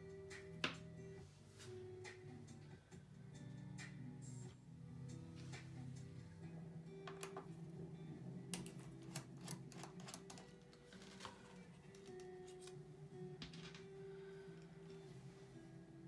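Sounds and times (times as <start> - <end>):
faint background music: 0.0 - 16.0
screwdriver clicking on screws: 8.6 - 10.5.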